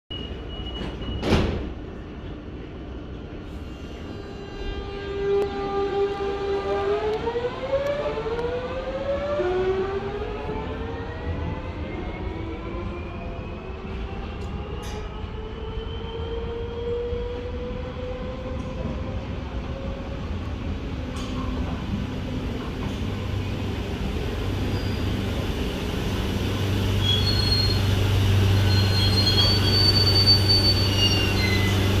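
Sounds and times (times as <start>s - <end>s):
train wheel squeals: 0.1s - 1.4s, 24.6s - 25.3s, 27.0s - 32.0s
train rumble and hum: 0.4s - 32.0s.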